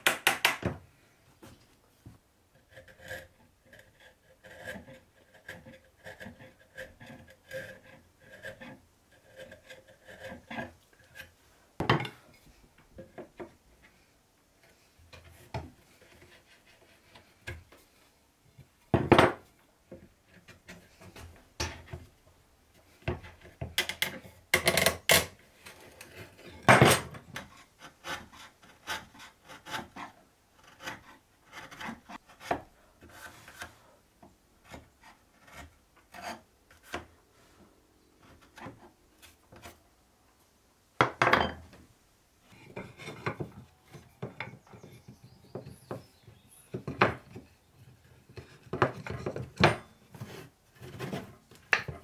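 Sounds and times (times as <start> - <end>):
hand file scraping wood: 2.6 - 11.4, 14.6 - 18.0, 27.3 - 34.0, 34.6 - 37.1.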